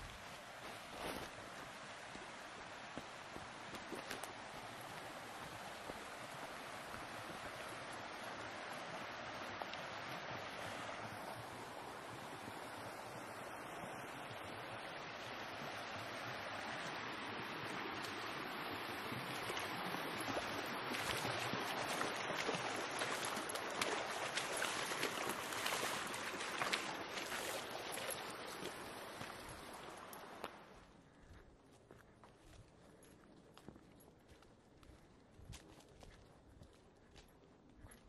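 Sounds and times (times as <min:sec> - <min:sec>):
brook water rushing: 0:00.0 - 0:30.8.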